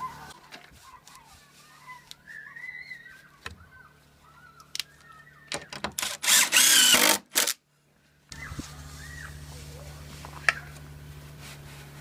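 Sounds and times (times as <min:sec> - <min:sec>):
cordless drill driving screw: 0:06.0 - 0:07.6.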